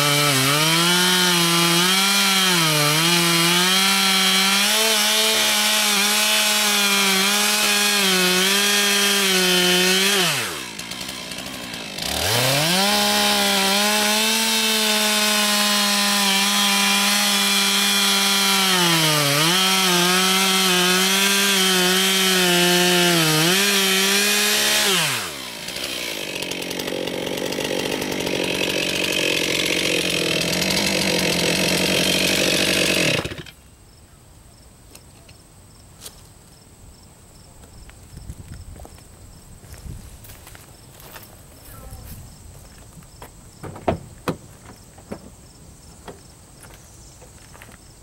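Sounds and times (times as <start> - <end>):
chainsaw running at high revs: 0.0 - 33.5.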